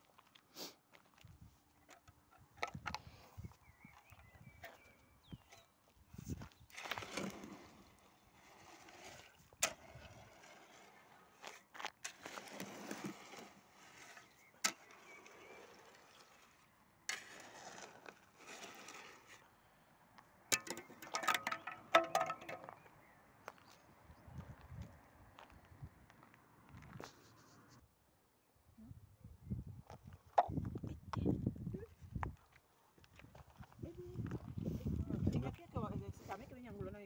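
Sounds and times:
shovel scraping wet concrete: 0:06.7 - 0:19.5, 0:20.5 - 0:22.7.

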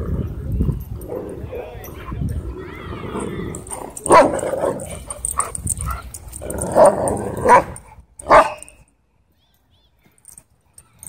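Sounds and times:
low dog growling noises: 0:00.0 - 0:07.9
dog barking: 0:04.1 - 0:05.5, 0:06.8 - 0:08.7.

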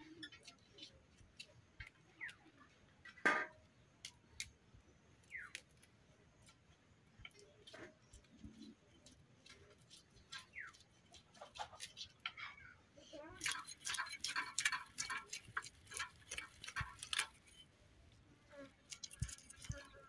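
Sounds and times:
knife scraping fish scales: 0:13.4 - 0:17.7, 0:18.9 - 0:20.0.

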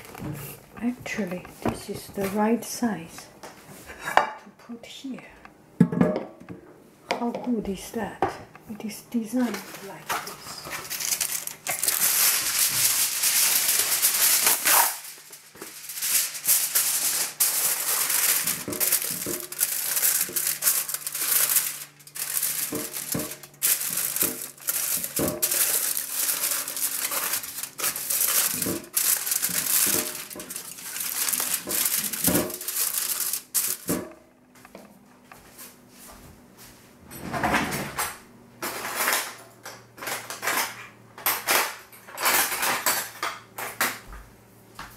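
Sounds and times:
aluminum foil crinkling: 0:00.0 - 0:01.4, 0:09.3 - 0:34.1.

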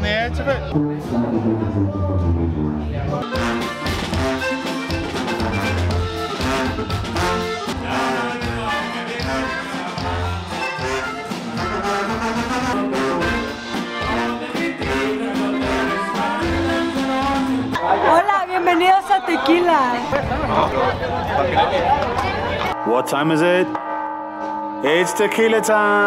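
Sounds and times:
pulsing low bass line: 0:00.0 - 0:04.5
brass music with trumpets: 0:00.0 - 0:18.3.

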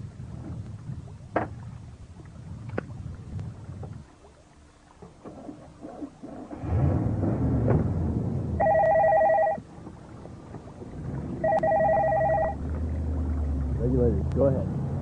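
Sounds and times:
low engine rumble: 0:00.0 - 0:15.0
telephone ringing: 0:08.6 - 0:09.6, 0:11.4 - 0:12.6.

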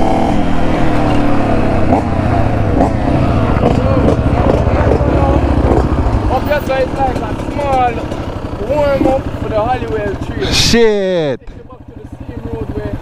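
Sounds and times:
another dirt bike engine: 0:00.0 - 0:13.0
motorcycle engine running hard: 0:00.0 - 0:13.0.

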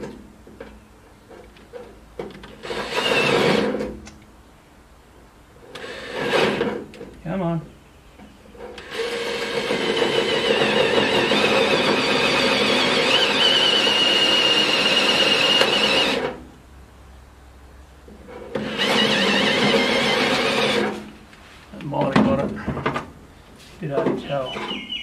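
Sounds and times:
drill cutting through steel: 0:02.6 - 0:03.7, 0:08.8 - 0:16.3, 0:18.6 - 0:21.0
high squeal from drill cutter: 0:13.0 - 0:16.1.

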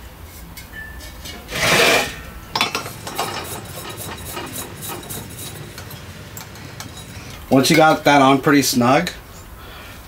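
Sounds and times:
metal threads scraping: 0:00.3 - 0:08.2.

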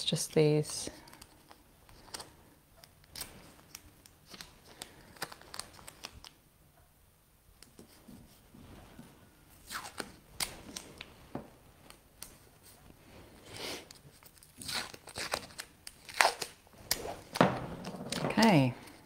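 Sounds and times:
tape crackling and clicking: 0:00.3 - 0:06.9, 0:09.6 - 0:13.0, 0:13.8 - 0:19.0.

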